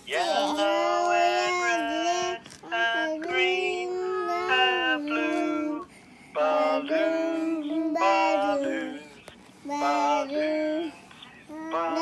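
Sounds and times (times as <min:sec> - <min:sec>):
young child singing: 0:03.0 - 0:05.8.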